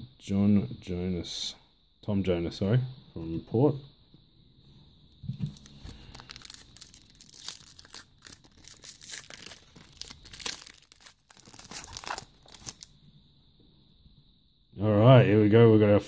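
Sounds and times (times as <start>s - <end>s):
foil wrapper crinkling and tearing: 5.5s - 12.9s.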